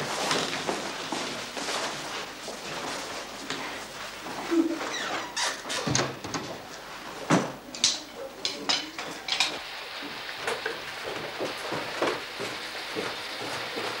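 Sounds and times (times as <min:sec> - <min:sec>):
footsteps down a staircase: 0:00.0 - 0:07.6, 0:08.6 - 0:14.0.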